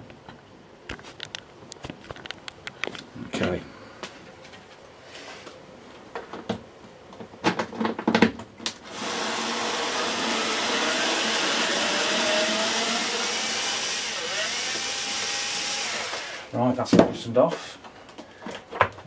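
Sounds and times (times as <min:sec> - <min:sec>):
power screwdriver motor running: 0:08.9 - 0:16.5.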